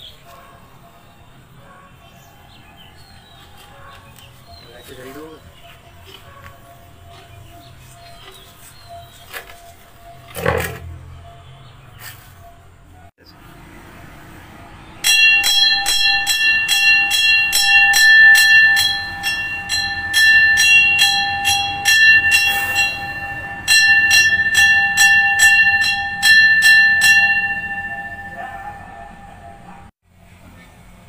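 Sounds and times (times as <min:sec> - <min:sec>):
temple bell ringing: 0:14.9 - 0:29.9.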